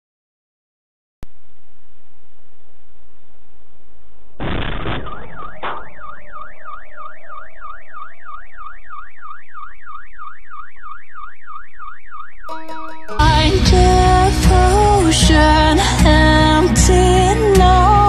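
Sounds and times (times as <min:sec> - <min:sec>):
car alarm siren warbling: 0:04.4 - 0:13.2.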